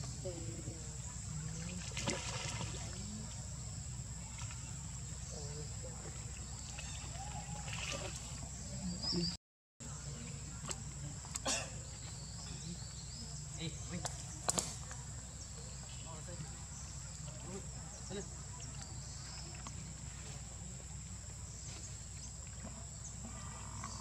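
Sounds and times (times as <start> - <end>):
pool water splashing and sloshing: 0.0 - 3.5, 4.1 - 8.9, 16.4 - 24.0
faint distant voices: 0.0 - 24.0.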